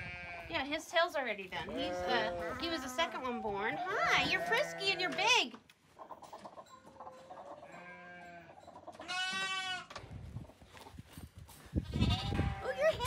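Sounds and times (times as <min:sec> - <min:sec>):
lamb bleating: 0:00.0 - 0:00.5, 0:01.6 - 0:05.2, 0:07.6 - 0:09.9, 0:11.9 - 0:12.9.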